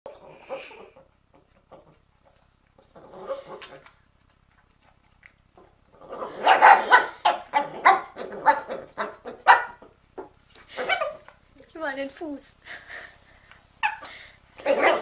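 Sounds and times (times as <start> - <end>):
dog snarling barks: 6.0 - 9.9, 14.6 - 15.0.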